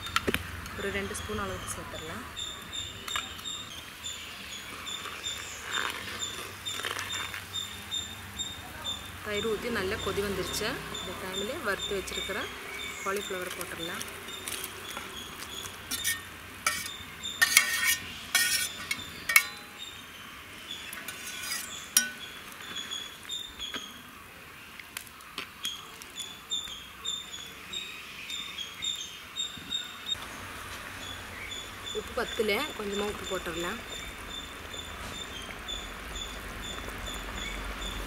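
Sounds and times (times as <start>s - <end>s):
spoon tapping and scraping in pot: 15.9s - 19.7s
steel spoon clinking on plate: 15.9s - 19.8s, 21.3s - 22.3s.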